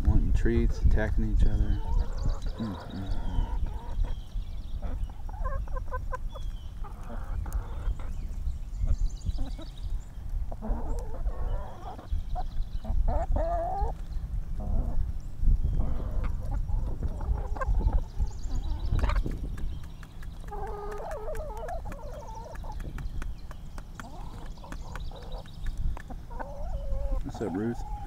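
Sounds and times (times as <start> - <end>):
hens clucking: 0.4 - 8.2, 10.5 - 14.0, 14.6 - 15.0, 15.8 - 28.0.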